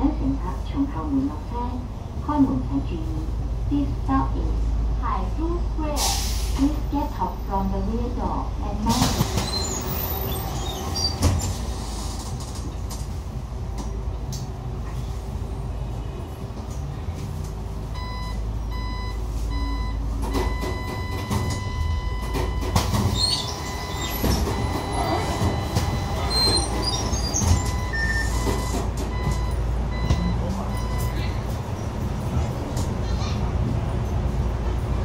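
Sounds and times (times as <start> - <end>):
bus interior rumble: 0.0 - 35.0
electronic beeps: 18.0 - 31.2.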